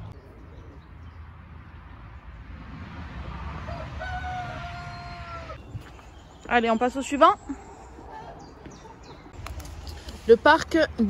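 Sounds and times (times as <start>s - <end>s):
rooster crowing: 3.6s - 5.6s.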